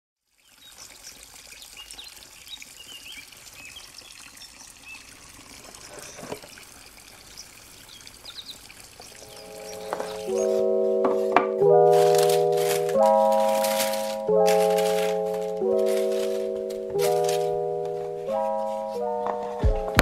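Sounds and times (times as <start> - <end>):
trickling water: 0.2 - 20.0
bird chirps: 7.3 - 10.7.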